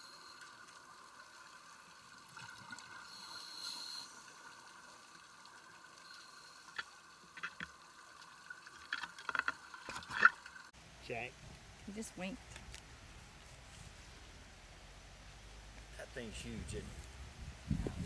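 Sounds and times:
underwater hum: 0.0s - 10.7s
scuba regulator breath hissing: 3.0s - 4.5s.

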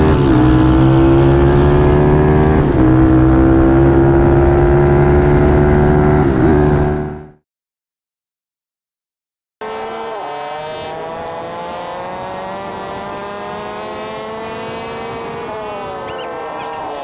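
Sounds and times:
mini bike engine running: 9.6s - 17.0s.

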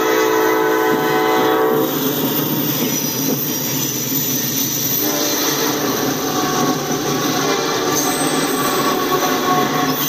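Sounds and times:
locomotive air horn: 0.0s - 1.9s, 4.9s - 5.9s
train engine and wheels rumbling: 0.0s - 10.0s.

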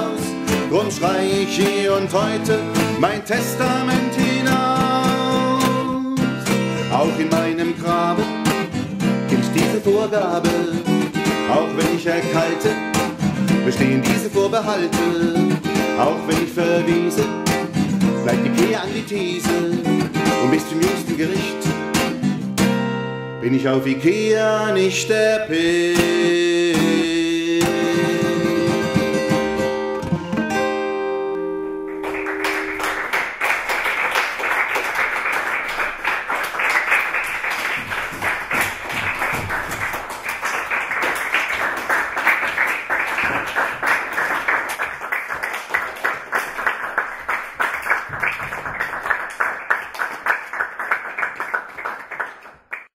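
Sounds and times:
acoustic guitar chords ringing: 0.0s - 33.2s
audience clapping: 31.8s - 52.9s.

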